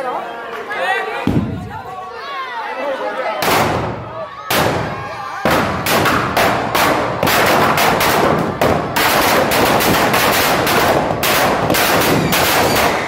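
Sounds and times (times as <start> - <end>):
firecrackers banging and crackling: 1.3 - 1.8, 3.4 - 13.0.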